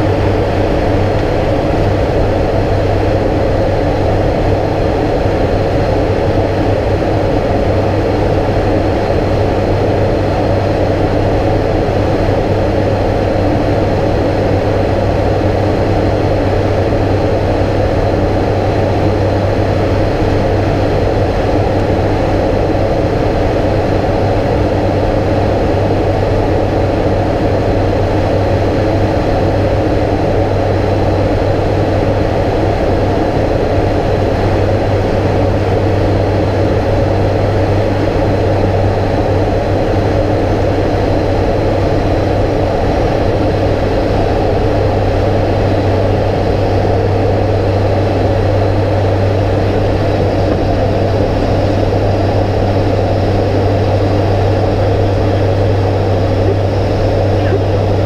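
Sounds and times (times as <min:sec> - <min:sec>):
turboprop engines droning: 0:00.0 - 0:58.0
airflow noise: 0:36.4 - 0:58.0.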